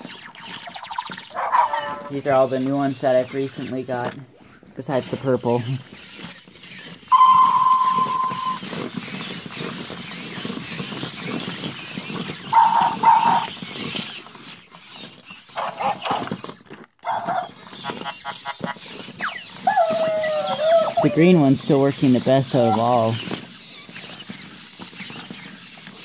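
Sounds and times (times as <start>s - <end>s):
plastic legs clicking on floor: 0.0s - 4.2s, 4.8s - 26.0s
robot motors whirring: 0.0s - 4.2s, 4.8s - 26.0s
electronic beeps: 7.1s - 8.6s.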